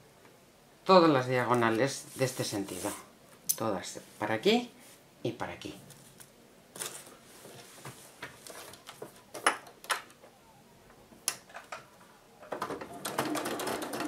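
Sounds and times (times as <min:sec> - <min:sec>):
fabric rustling: 0:01.6 - 0:03.1
electric sewing machine stitching: 0:12.9 - 0:14.0.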